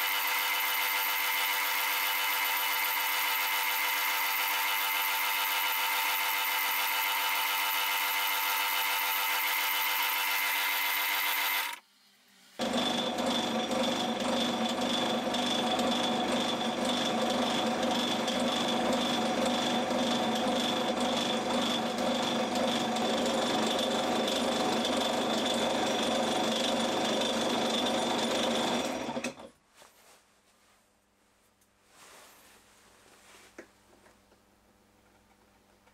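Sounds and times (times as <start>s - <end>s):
metal lathe running: 0.0s - 11.8s, 12.6s - 29.2s.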